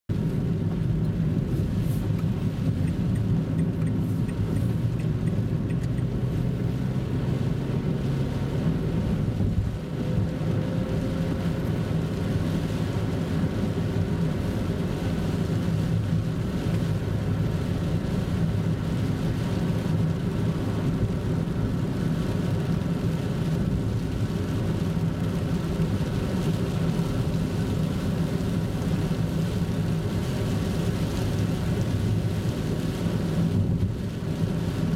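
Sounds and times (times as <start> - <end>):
car engine and tyre hum: 0.1 - 34.9.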